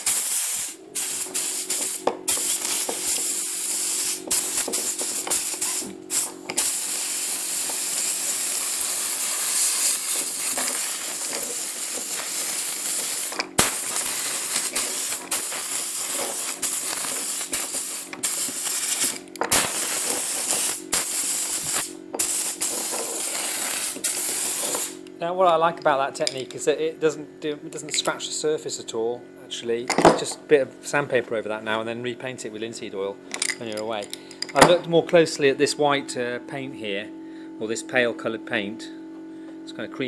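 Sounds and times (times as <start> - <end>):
compressed air blow gun hissing: 0.0 - 25.0.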